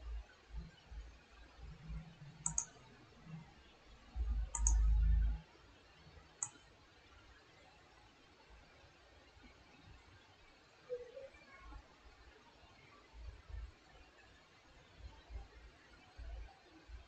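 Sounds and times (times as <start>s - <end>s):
computer mouse clicks: 2.4s - 2.8s, 4.4s - 5.4s, 6.4s - 6.6s.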